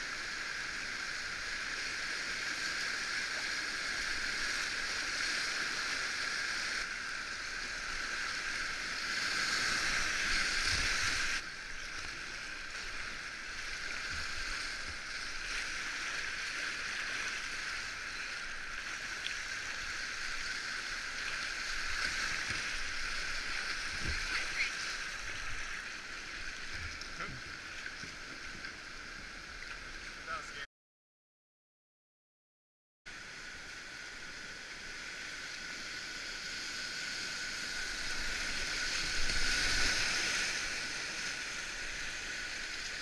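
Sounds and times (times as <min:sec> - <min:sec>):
river rapids rushing: 0:09.3 - 0:27.7.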